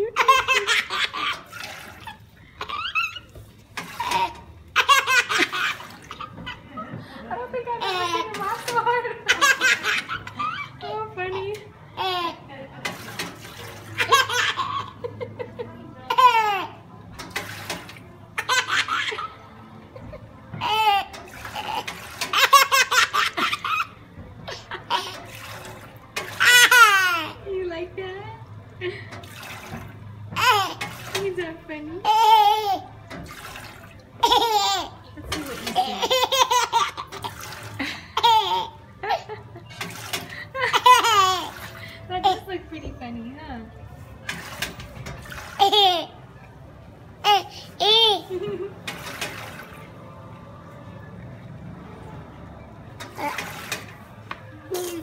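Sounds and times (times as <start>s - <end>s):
baby laughing: 0.0s - 6.7s, 7.8s - 12.4s, 13.8s - 15.2s, 16.1s - 16.8s, 18.4s - 19.4s, 20.6s - 25.3s, 26.4s - 27.4s, 30.4s - 30.8s, 32.0s - 32.9s, 34.2s - 39.7s, 40.3s - 42.5s, 45.5s - 46.2s, 47.2s - 48.7s
water fountain trickling: 0.0s - 55.0s
baby giggling: 34.2s - 35.0s, 35.7s - 37.4s, 38.2s - 39.4s, 47.2s - 48.7s.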